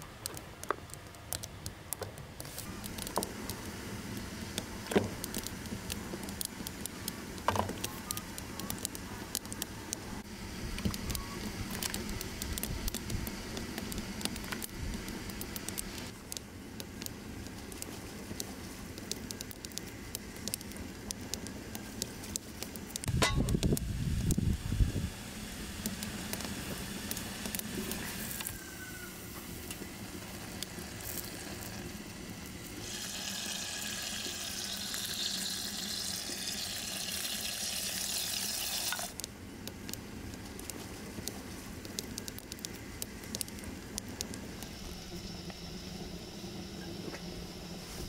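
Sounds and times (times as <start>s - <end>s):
food sizzling on stove: 23.1s - 39.2s.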